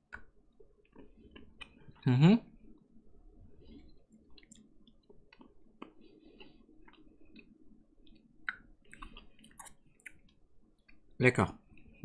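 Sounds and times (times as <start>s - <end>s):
mouth clicks and smacks: 0.1s - 2.0s, 4.1s - 11.0s
chewing candy: 4.2s - 11.0s.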